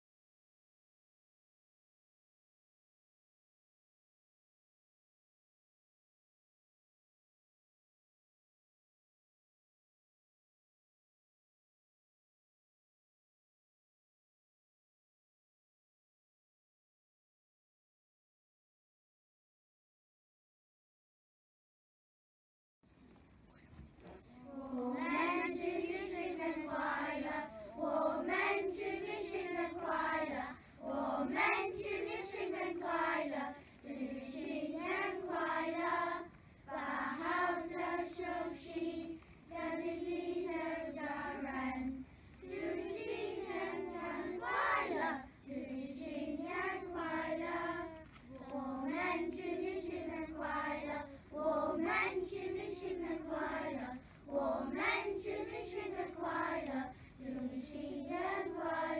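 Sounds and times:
children singing in unison: 24.4s - 58.9s.

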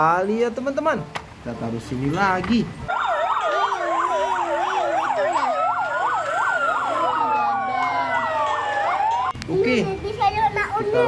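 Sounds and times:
fire engine sirens yelping and wailing: 2.8s - 10.0s.

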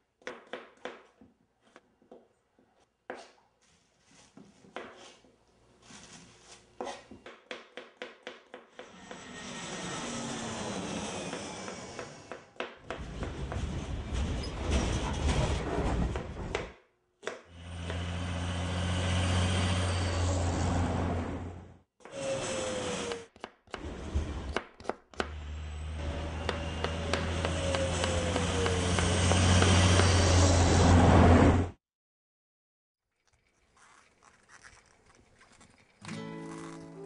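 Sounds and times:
car passing with low hum: 17.6s - 21.8s
rumbling road traffic: 17.6s - 21.8s, 25.3s - 31.7s.

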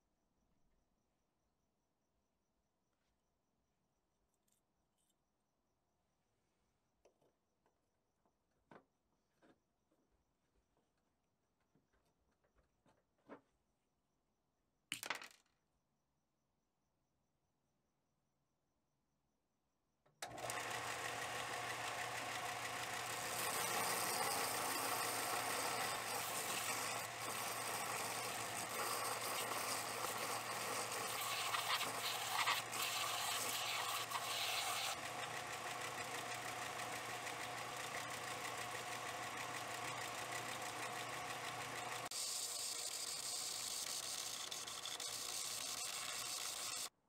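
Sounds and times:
belt sander motor hum: 20.2s - 46.9s
steel grinding on belt: 22.7s - 35.2s, 42.0s - 46.9s.

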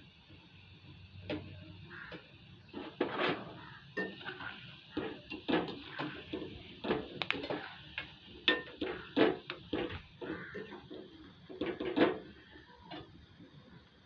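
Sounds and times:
oil hissing: 0.0s - 14.0s
steel utensils clinking on pan: 2.8s - 7.8s, 8.4s - 13.1s.

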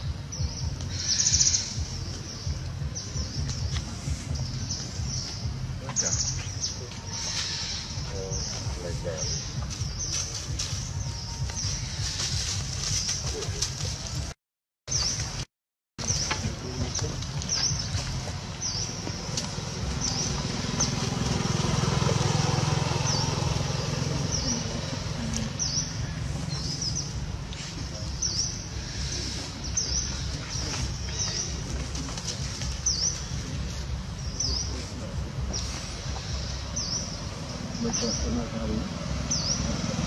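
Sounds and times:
bird chirping: 0.0s - 14.3s, 16.0s - 40.0s
low outdoor rumble: 0.0s - 14.4s, 15.1s - 40.0s.

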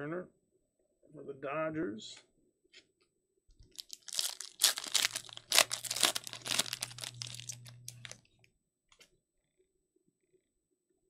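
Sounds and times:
foil wrapper tearing and crinkling: 3.6s - 8.2s.

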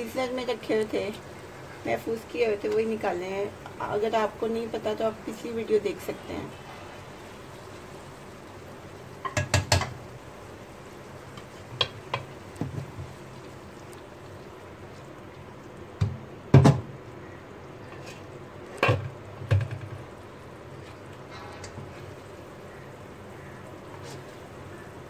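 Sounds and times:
spatula knocking on a pot: 9.2s - 10.0s.

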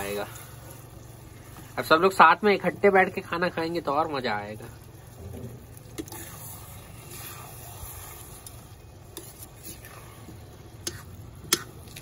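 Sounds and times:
spoon scraping and stirring: 5.8s - 12.0s.

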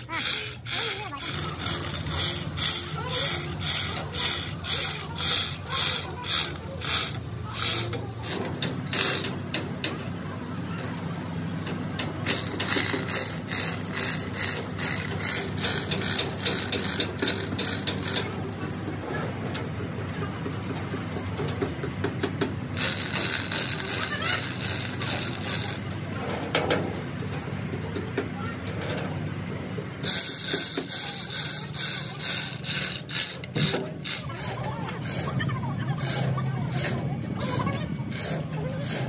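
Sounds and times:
hoist chain rattling: 0.0s - 9.5s, 12.2s - 18.4s, 22.7s - 26.0s, 30.0s - 35.4s
steady low hum: 0.0s - 39.0s.

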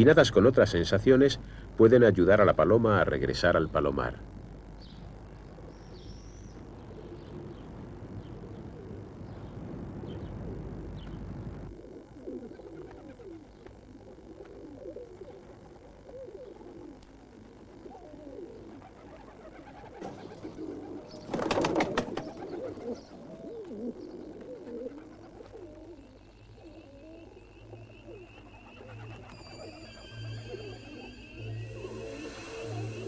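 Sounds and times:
pigeons cooing: 4.2s - 33.0s
wing flapping: 12.4s - 27.2s.

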